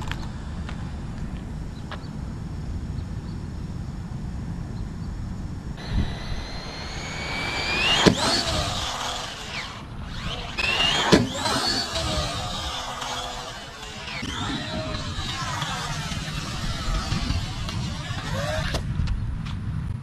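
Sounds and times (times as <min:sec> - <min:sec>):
rc car electric motor whine: 0:05.8 - 0:18.8
rc car knocking on ramp: 0:10.1 - 0:12.2.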